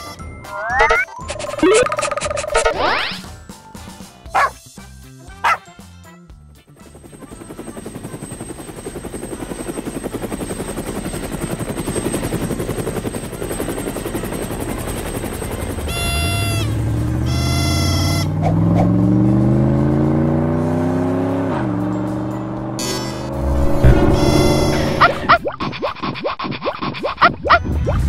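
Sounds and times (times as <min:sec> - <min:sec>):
cartoon helicopter rotor chop: 0:00.5 - 0:03.4, 0:06.9 - 0:28.0
dog bark: 0:05.4 - 0:05.6
short honking tone: 0:15.9 - 0:18.4, 0:22.8 - 0:25.3
car engine revving: 0:16.3 - 0:25.4.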